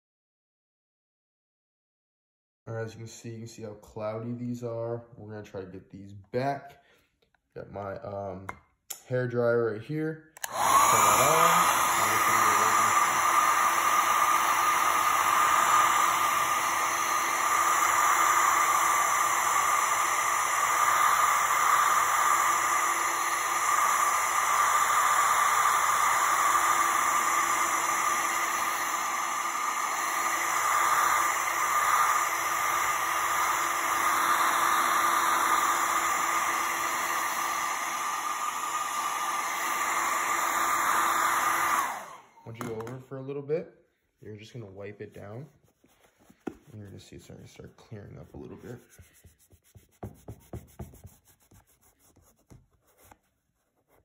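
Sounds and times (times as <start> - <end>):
hair dryer running: 10.4 - 43.0.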